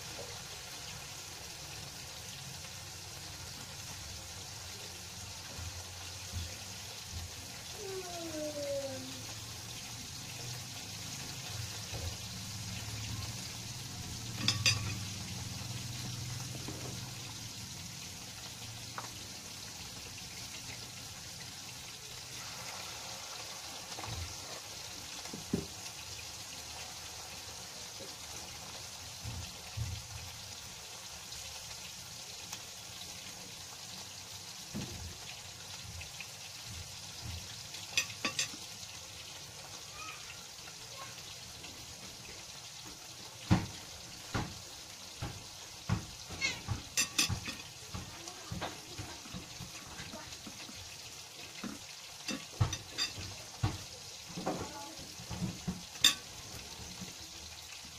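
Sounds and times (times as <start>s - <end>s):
fritters sizzling in oil: 0.0s - 57.9s
utensils knocking on pan: 14.3s - 15.1s, 37.9s - 38.6s, 45.2s - 50.1s, 51.6s - 53.8s.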